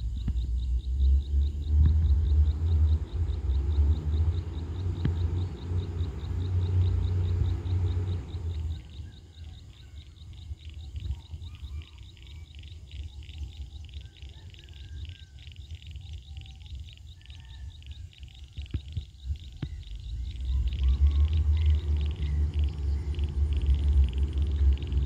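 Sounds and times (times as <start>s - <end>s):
bird chirps: 0.0s - 25.0s
low engine rumble: 0.0s - 25.0s
rapid high chirping pulse: 0.0s - 25.0s.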